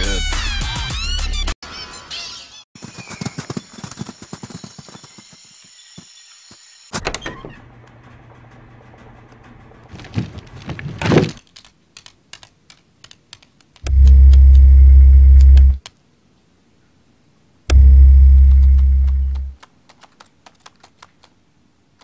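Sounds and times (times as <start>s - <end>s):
claws ticking on hard floor: 9.9s - 13.8s
loud low steady hum: 13.8s - 15.8s, 17.7s - 19.6s.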